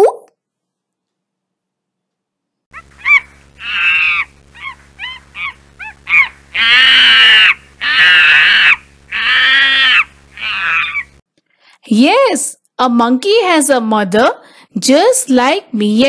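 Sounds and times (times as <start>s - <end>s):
monkey chattering calls: 2.7s - 11.1s
monkey screeches: 2.7s - 11.2s.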